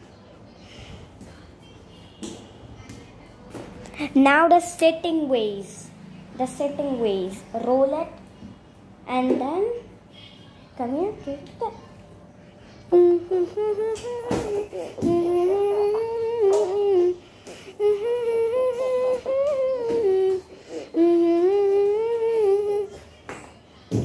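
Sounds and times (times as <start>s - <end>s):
person humming: 12.9s - 23.1s.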